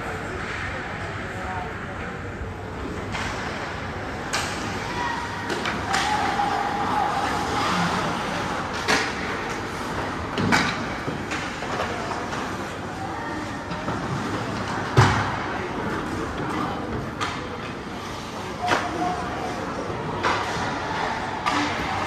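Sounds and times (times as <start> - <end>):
hockey sticks cracking on puck: 2.9 - 22.0.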